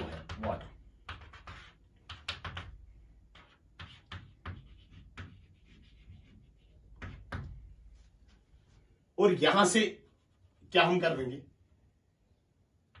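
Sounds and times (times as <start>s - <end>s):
marker scratching on a board: 0.0s - 8.0s, 10.0s - 10.7s.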